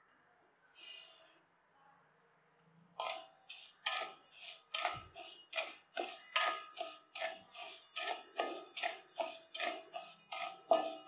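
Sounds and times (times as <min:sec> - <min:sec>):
rice poured into steel pan: 0:00.8 - 0:01.6, 0:03.0 - 0:11.0
spatula scraping rice in pan: 0:03.0 - 0:11.0.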